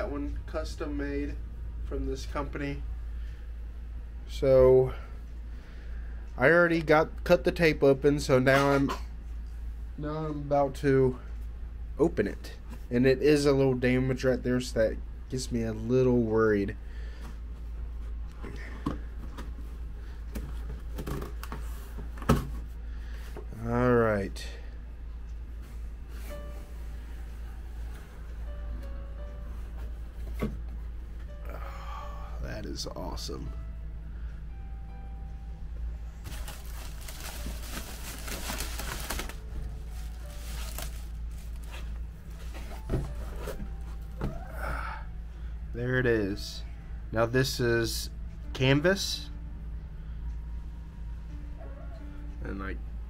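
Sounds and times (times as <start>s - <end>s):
steady low hum: 0.0s - 53.0s
plastic wrap crinkling: 36.2s - 41.9s
hands handling cardboard box: 36.3s - 41.9s.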